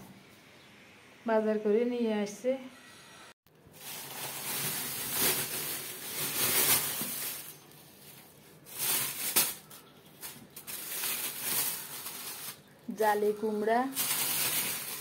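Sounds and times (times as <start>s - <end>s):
plastic bags rustling: 3.6s - 15.0s.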